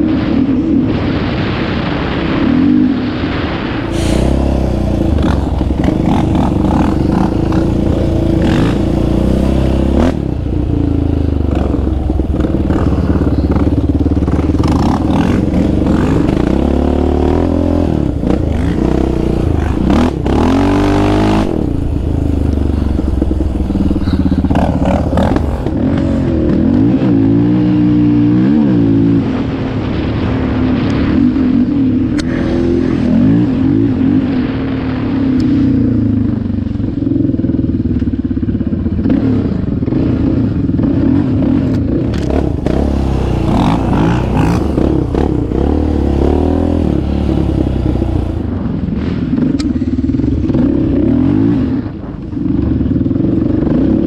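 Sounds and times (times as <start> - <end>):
quad engine revving: 3.9 - 29.4, 39.1 - 48.6.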